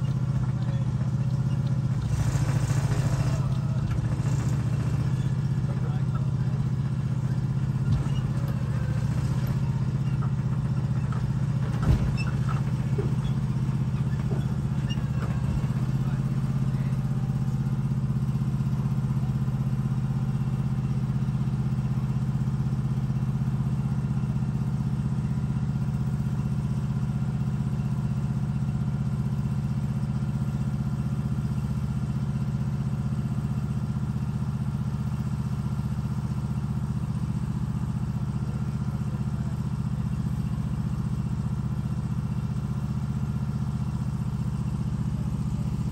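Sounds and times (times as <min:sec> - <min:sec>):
small engine running: 0:00.0 - 0:18.3.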